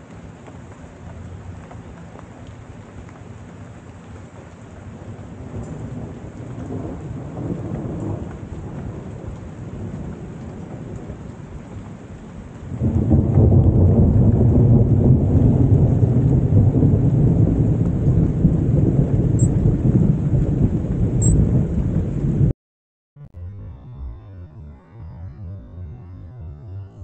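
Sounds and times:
steady rain: 0.0 - 22.5
thunder rumbling: 5.0 - 22.5.

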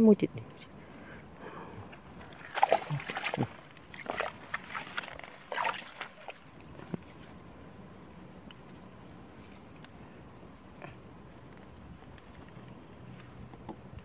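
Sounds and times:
hands splashing in muddy water: 2.3 - 6.5.

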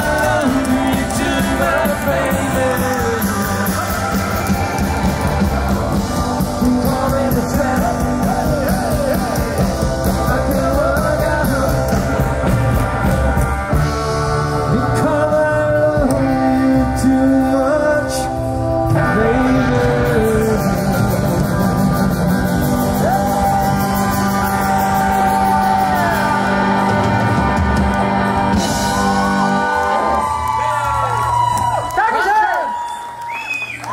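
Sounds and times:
person singing: 0.0 - 4.5, 6.0 - 12.8, 14.6 - 27.6
rock and roll band playing: 0.0 - 32.4.

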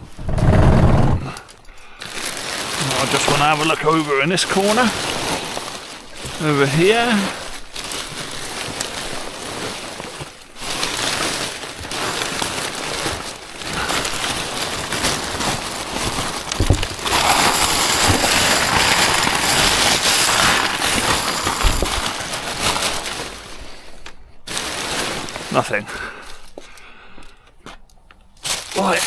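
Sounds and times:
paper and plastic bags rustling: 1.3 - 27.5, 28.3 - 29.0.

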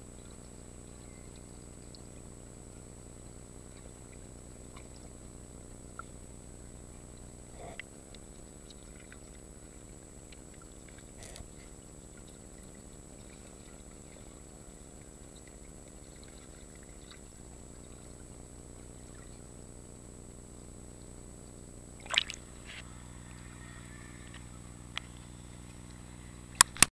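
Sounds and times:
faint high whine: 0.0 - 26.9
low underwater hum: 0.0 - 26.9
water splashing: 22.0 - 22.6
small clicks: 26.6 - 26.9.

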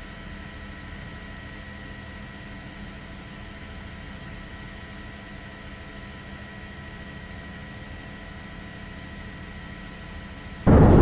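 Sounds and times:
low hum: 10.7 - 11.0.

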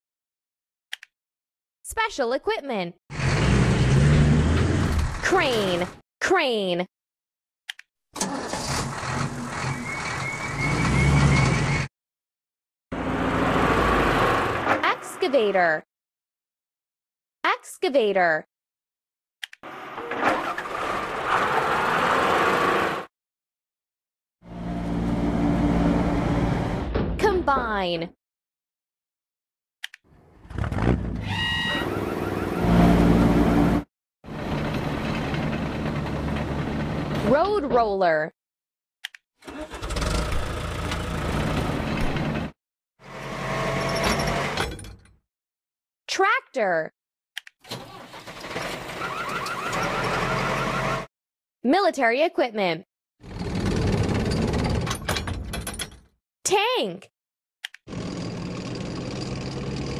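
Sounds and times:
road roller engine running: 8.2 - 11.1, 13.0 - 14.7, 31.9 - 37.2, 57.9 - 59.9
cartoon crane engine running: 8.2 - 11.9, 12.9 - 15.6, 19.6 - 23.1, 24.5 - 26.9, 31.0 - 37.5, 39.4 - 44.6, 47.8 - 51.1, 57.9 - 59.9
machine engine noise: 31.8 - 37.3.

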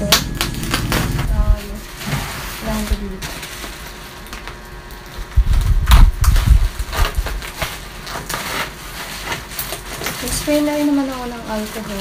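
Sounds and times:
heavy low thumps: 0.0 - 1.9
plastic crinkling and rustling: 0.3 - 12.0.

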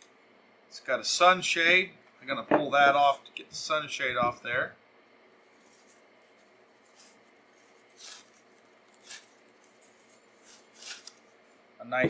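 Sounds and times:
foam sleeve rustling: 5.4 - 11.6.

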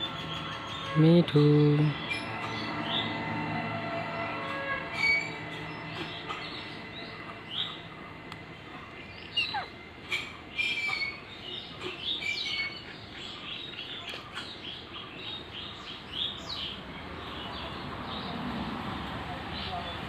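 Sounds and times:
vehicle low rumble: 0.0 - 10.6
parakeets chirping and squawking: 0.0 - 15.4.

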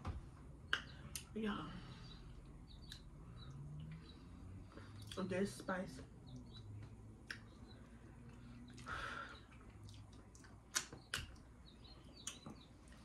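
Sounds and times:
lip smacks and clicks: 0.6 - 1.4, 2.4 - 4.1, 6.3 - 11.5, 12.2 - 13.0.

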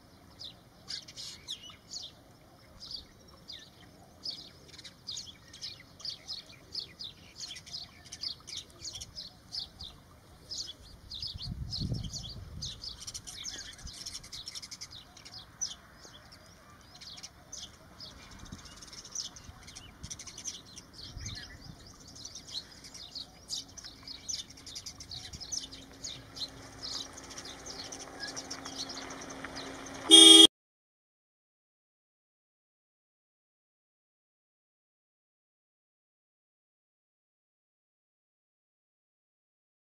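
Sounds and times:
sparrows chirping: 0.0 - 30.5
short loud burst: 30.1 - 30.5.

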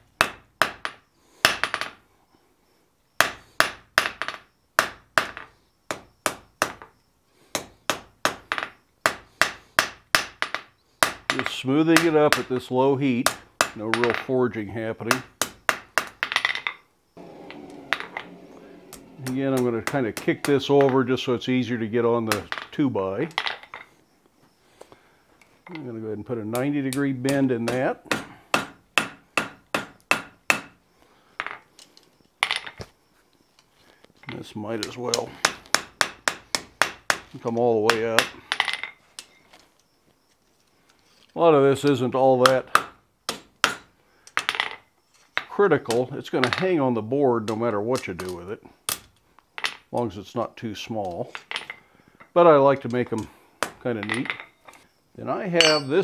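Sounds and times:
hammer striking metal on anvil: 55.6 - 56.0.

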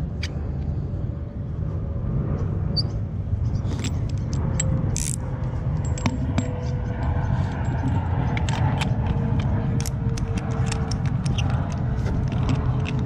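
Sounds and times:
steady low rumble: 0.0 - 13.0
metal tool clicks and scrapes: 3.6 - 13.0.

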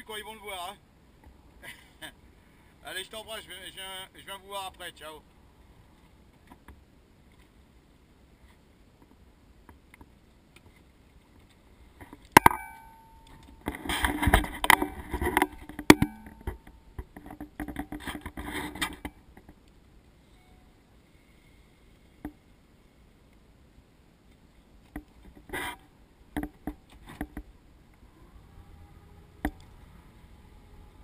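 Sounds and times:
sharp ringing clank: 12.4 - 13.7, 14.7 - 16.9.

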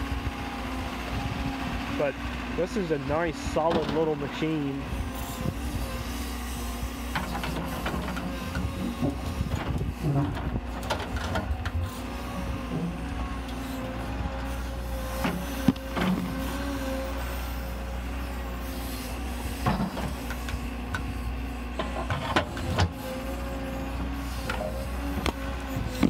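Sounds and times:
diesel engine running: 0.0 - 26.0
hydraulic whine: 0.0 - 26.0.

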